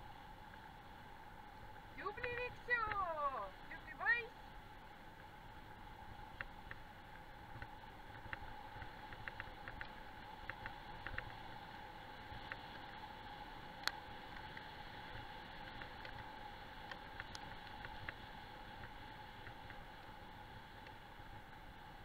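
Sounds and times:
light ticks and clicks: 2.0 - 4.2, 6.3 - 21.6
wheels rolling over gravel: 5.1 - 22.0.

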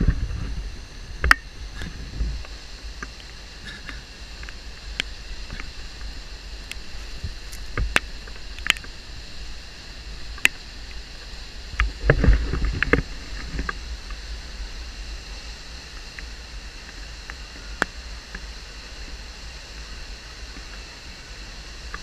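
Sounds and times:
low rumble: 0.0 - 16.6.

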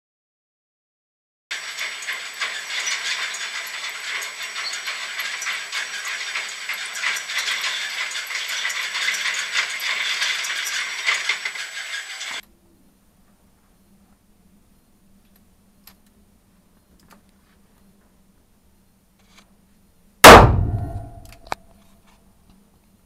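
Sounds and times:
target carrier rattling hiss: 1.5 - 12.4.

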